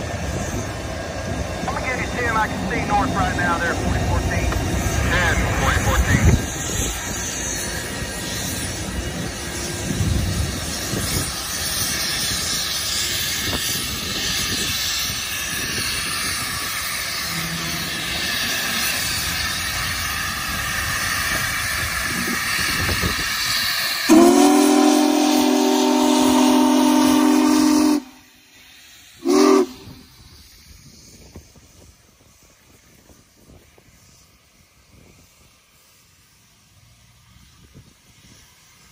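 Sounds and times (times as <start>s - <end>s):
steam locomotive moving slowly: 0.0s - 38.9s
steam venting hiss: 0.0s - 38.9s
steam whistle: 24.1s - 28.3s, 29.2s - 30.0s.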